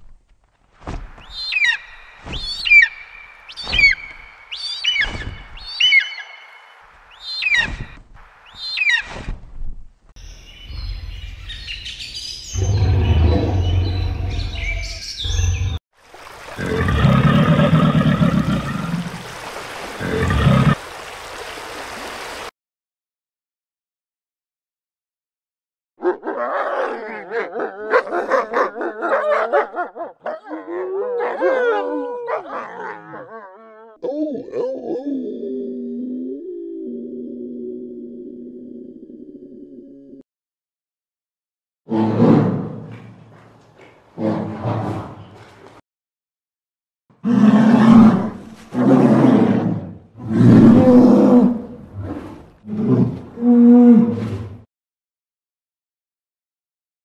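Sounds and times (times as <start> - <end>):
large animal growling roars: 12.6 - 15.8, 47.2 - 54.6
wolves yipping and barking: 26.0 - 33.9
wolves howling: 26.0 - 35.9.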